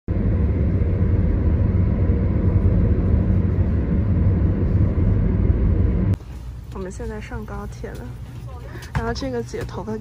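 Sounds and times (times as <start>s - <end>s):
car driving on road: 0.1s - 6.2s.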